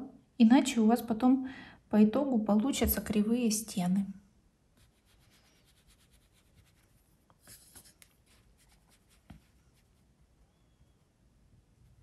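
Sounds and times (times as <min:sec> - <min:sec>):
brush scratching on paper: 0:04.8 - 0:10.1.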